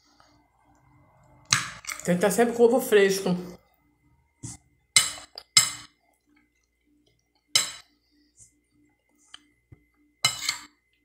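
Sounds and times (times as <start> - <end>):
metal spoon clinking on glass plate: 10.2 - 10.7.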